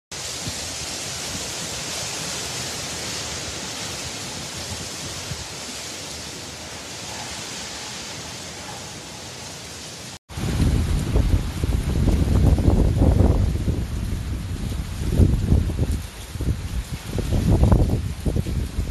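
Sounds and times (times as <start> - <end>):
driving rain: 0.1 - 18.9
hurricane wind: 0.1 - 18.9.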